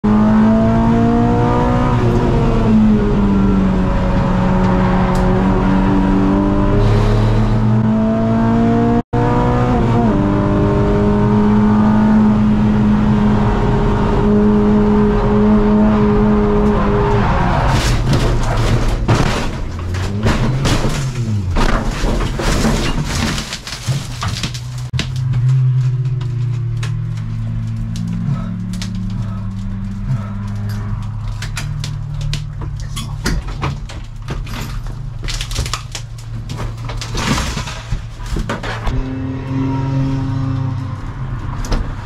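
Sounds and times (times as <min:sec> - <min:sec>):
car engine revving: 0:00.0 - 0:21.6, 0:38.9 - 0:42.0
knocks and rattles: 0:17.7 - 0:38.9.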